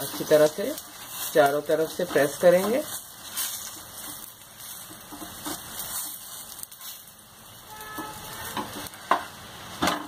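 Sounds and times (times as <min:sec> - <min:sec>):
flatbread sizzling in oil: 0:00.0 - 0:10.0
spatula knocking pan: 0:03.6 - 0:06.5, 0:07.8 - 0:10.0.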